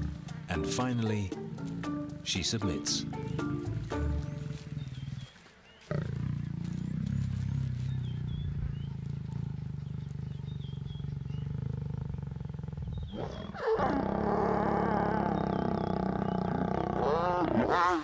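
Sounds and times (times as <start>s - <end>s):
lions growling: 3.0s - 18.0s
lion snarling growl: 5.9s - 18.0s.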